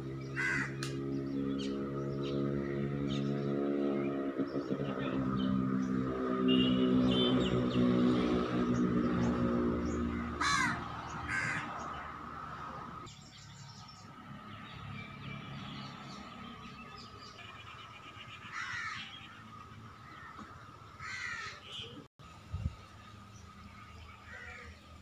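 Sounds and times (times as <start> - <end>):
crows cawing: 0.3 - 1.0, 10.1 - 12.1, 18.5 - 19.1, 20.0 - 21.7, 24.3 - 24.8.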